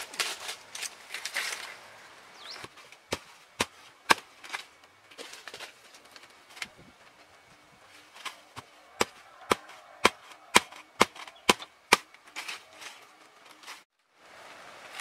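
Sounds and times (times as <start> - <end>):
tool chopping wood: 2.5 - 4.6, 8.5 - 12.5.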